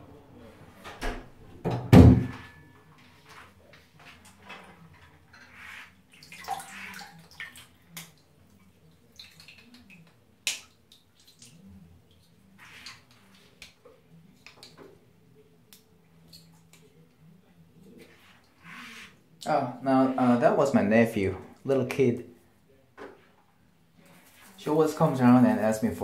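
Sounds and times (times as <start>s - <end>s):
water sloshing in a sink: 4.0s - 14.8s.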